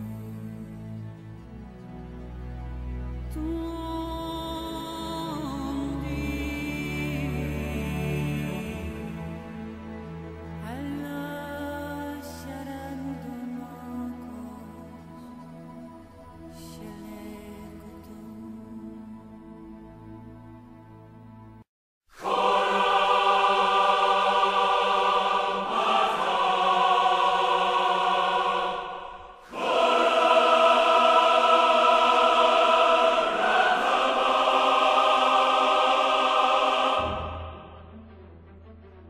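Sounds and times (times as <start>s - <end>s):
choir singing sustained chords: 0.0s - 21.6s, 22.2s - 38.4s
soft music: 0.0s - 28.6s, 29.4s - 39.0s.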